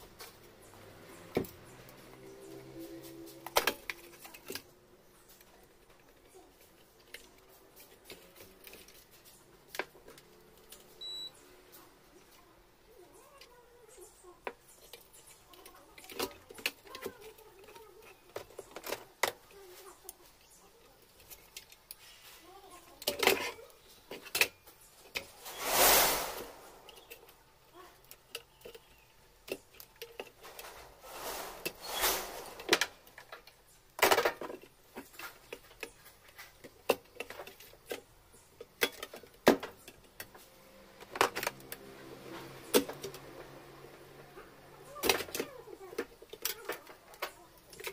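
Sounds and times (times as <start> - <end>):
clicks and rattles of wire connectors: 14.4 - 20.2, 28.0 - 30.9, 45.0 - 47.9
rustling noise: 25.0 - 27.4, 30.3 - 33.5.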